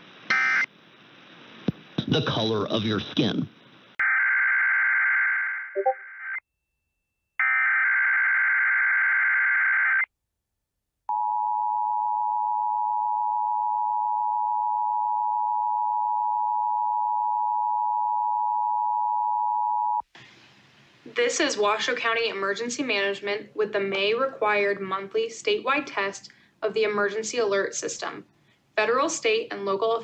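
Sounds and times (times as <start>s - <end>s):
two-tone alert signal: 5.8s - 6.0s.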